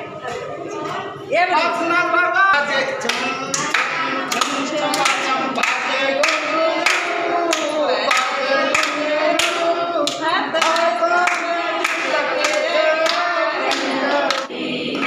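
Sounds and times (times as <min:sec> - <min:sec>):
hands clapping along: 0:02.5 - 0:15.0
children singing: 0:02.6 - 0:15.0.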